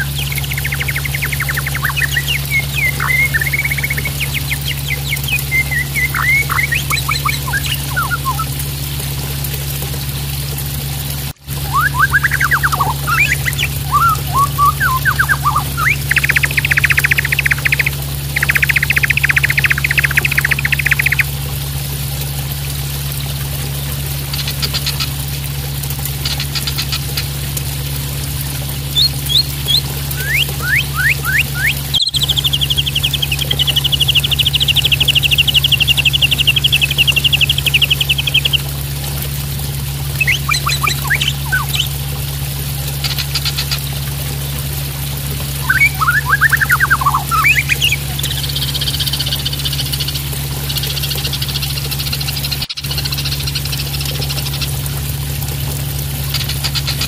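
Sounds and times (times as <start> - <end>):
bird singing with trills: 0.0 - 8.5, 11.6 - 21.3, 29.0 - 38.7, 40.1 - 42.0, 45.6 - 51.7
splashing water: 0.0 - 57.0.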